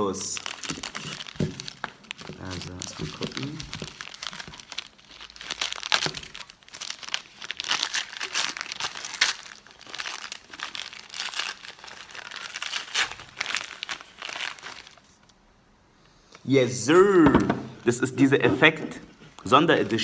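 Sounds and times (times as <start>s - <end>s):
wrapping paper crinkling and tearing: 0.0s - 15.3s.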